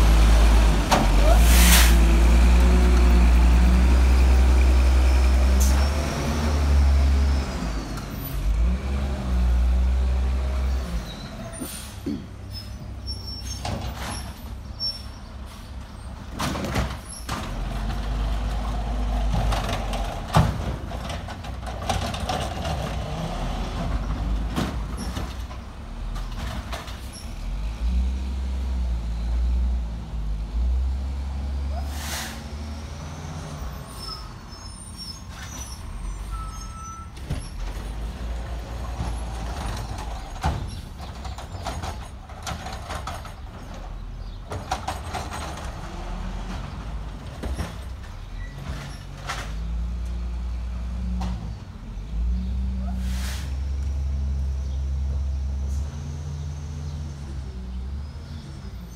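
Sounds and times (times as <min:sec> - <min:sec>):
garbage truck diesel engine: 0:00.0 - 0:58.9
air brake hisses and knocks: 0:31.9 - 0:32.5.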